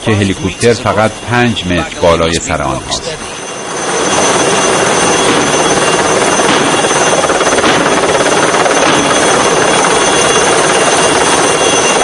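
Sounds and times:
helicopter rotor and turbine: 0.0s - 12.0s.

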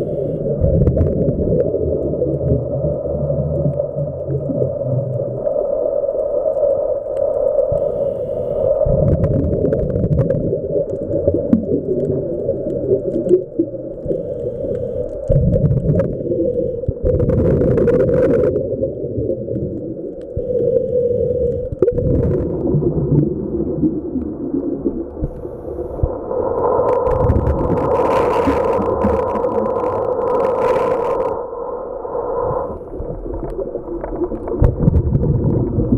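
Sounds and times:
exhaled bubbles: 0.0s - 35.9s
faint clicks: 2.0s - 22.7s, 24.0s - 31.4s
underwater regulator breathing: 7.7s - 8.8s, 14.0s - 15.3s, 20.4s - 21.9s.

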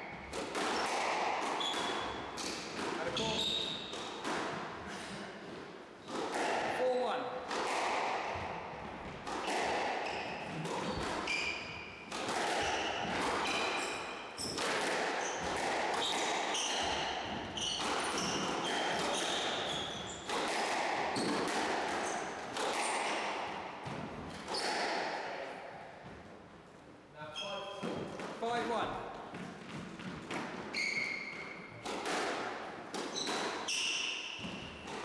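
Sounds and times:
squash ball smacks: 0.2s - 4.7s, 6.1s - 6.8s, 7.4s - 11.5s, 12.1s - 25.4s, 31.3s - 35.0s
shoes squeaking on wooden floor: 1.6s - 4.2s, 9.0s - 14.6s, 15.2s - 20.4s, 27.3s - 28.2s, 29.3s - 31.8s, 33.0s - 35.0s.

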